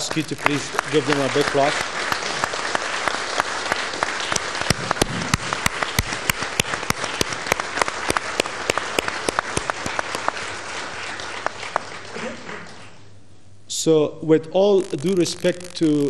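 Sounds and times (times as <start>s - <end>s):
audience applauding: 0.0s - 13.0s
loud single claps close by: 3.7s - 10.4s.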